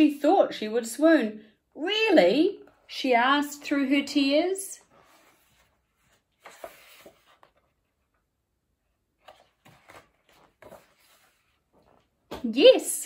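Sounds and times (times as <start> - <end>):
book pages rustling: 4.8 - 8.3, 9.1 - 12.5.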